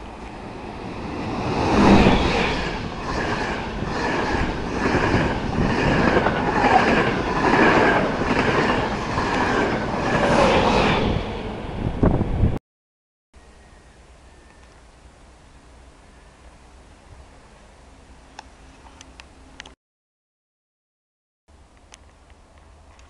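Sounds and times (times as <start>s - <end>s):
electric train passing: 0.0s - 12.6s.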